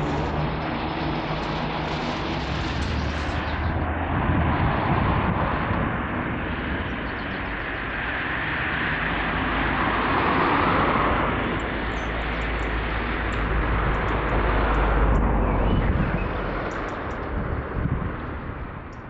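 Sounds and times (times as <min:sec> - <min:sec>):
low traffic rumble: 0:00.0 - 0:19.0.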